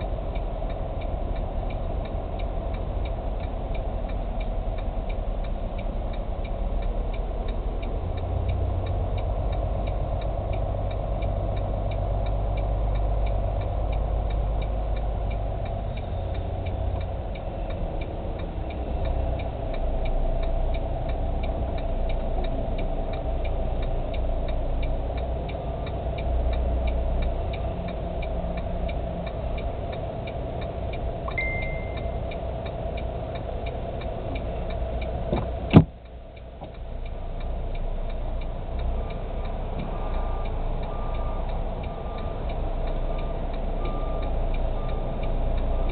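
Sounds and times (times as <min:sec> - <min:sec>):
diesel engine running: 0:00.0 - 0:45.9
regular ticking: 0:00.0 - 0:45.9
short beep: 0:31.3 - 0:32.2.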